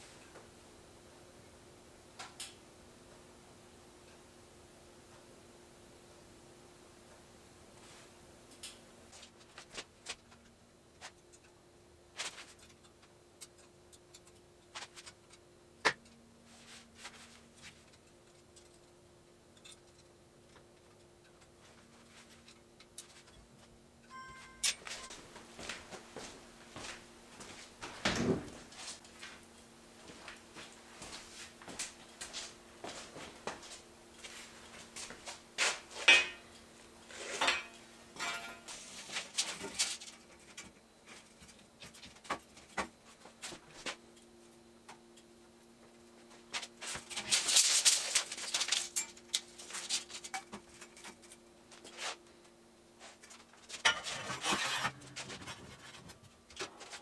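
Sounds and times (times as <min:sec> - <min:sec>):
faint steady hum: 0:00.0 - 0:57.0
steel tubing clanking: 0:37.4 - 0:38.7.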